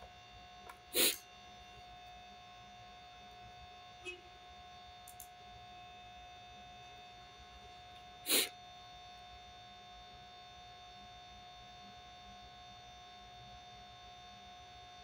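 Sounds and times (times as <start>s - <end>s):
small click: 5.0s - 5.3s.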